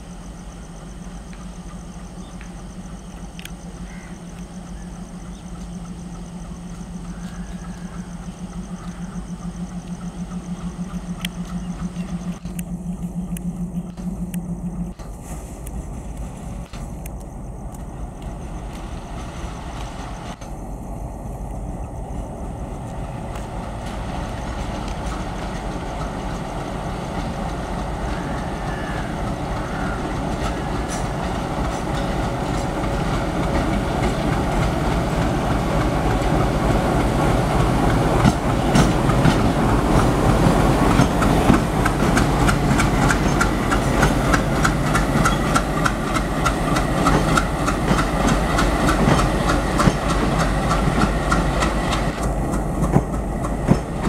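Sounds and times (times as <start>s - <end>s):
diesel locomotive passing: 0.0s - 54.0s
train wheels clattering over rail joints: 22.7s - 54.0s.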